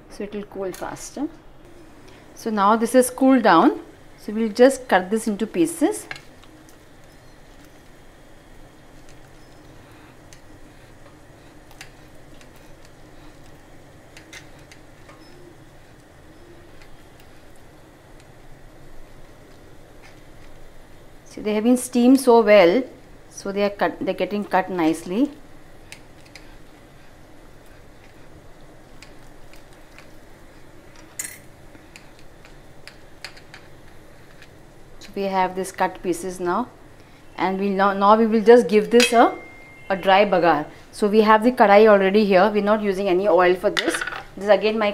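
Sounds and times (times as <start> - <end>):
low background hum: 0.0 - 44.9.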